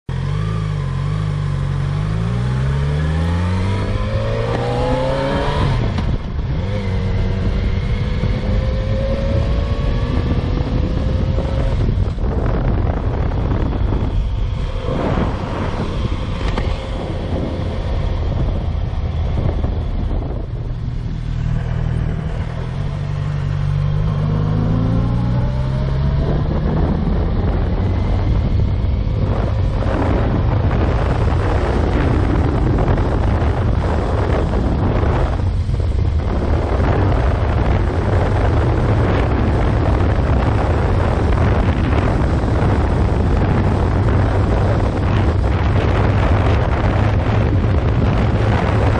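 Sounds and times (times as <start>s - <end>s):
motorcycle engine revving: 0.1s - 48.9s
wind rushing over microphone: 0.1s - 48.9s.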